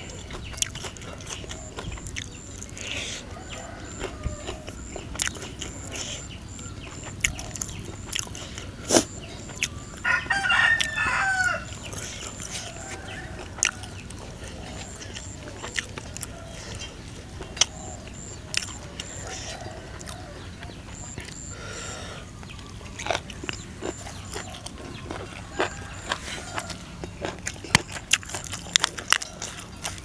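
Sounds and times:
eating and chewing sounds: 0.0s - 30.0s
rooster crowing: 2.4s - 7.7s, 9.2s - 27.1s.

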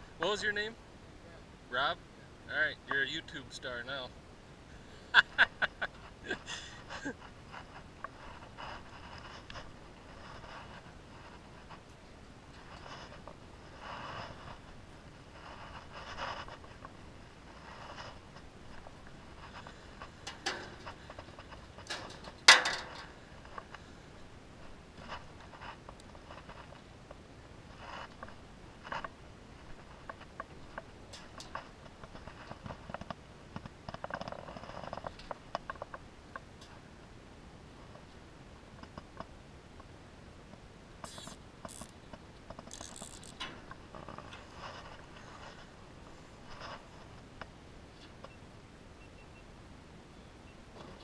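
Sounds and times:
light rattles and knocks: 17.6s - 23.8s
wire trap metallic clatters: 21.8s - 23.1s
trap scraping: 41.0s - 42.0s, 42.6s - 45.7s
wire-mesh trap clicking and rustling: 42.7s - 43.6s.

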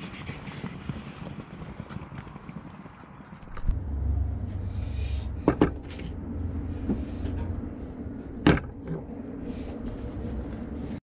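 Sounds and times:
low steady hum: 3.4s - 11.0s.

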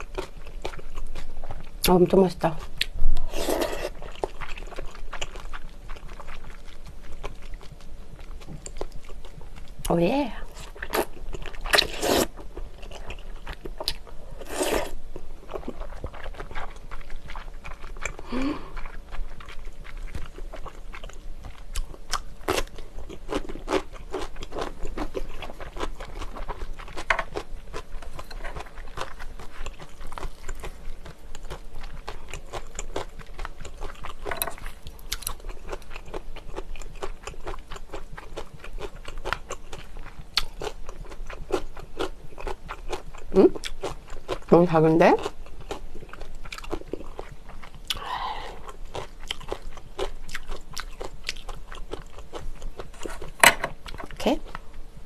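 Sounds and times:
close chewing with wet mouth clicks: 0.0s - 1.8s, 3.8s - 10.0s, 10.6s - 44.5s, 45.2s - 53.3s
bites and crunches: 10.7s - 15.0s.

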